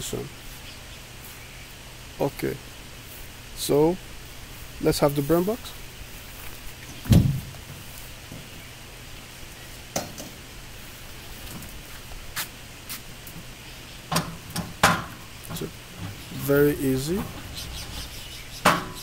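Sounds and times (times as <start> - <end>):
steady background hiss: 0.0 - 19.0
steel parts knocking and clanking: 14.1 - 19.0.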